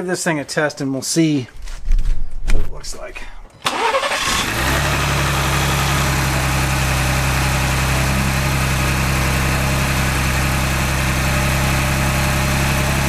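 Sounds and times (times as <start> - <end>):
car engine idling: 3.7 - 13.0.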